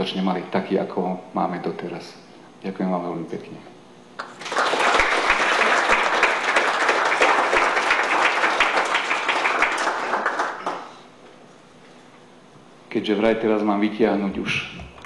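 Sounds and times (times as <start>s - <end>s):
small audience applauding: 4.2s - 11.0s.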